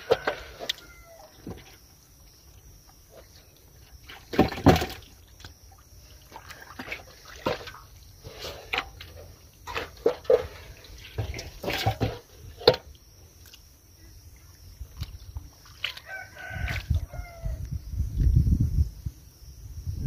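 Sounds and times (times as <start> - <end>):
hands splashing in muddy water: 3.2 - 7.9, 14.9 - 17.4.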